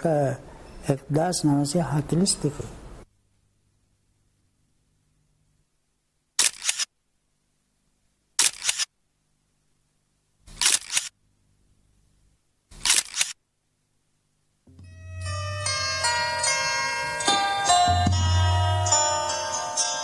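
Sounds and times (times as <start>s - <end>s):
camera shutter clicks: 6.4s - 6.9s, 8.4s - 8.9s, 10.5s - 11.2s, 12.8s - 13.4s.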